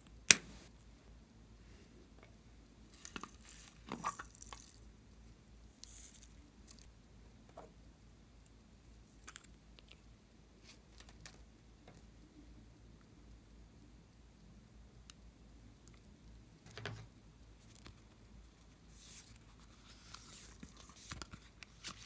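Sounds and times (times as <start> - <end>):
soft rustling and crinkling: 1.7 - 6.9, 15.9 - 22.0.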